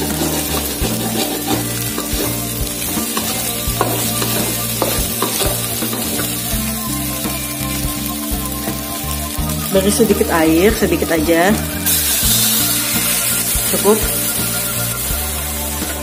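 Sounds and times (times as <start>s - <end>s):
spatula scraping pan: 0.0s - 8.8s
background music: 0.0s - 16.0s
food sizzling in a wok: 0.0s - 16.0s
spatula knocking on pan: 3.1s - 6.4s.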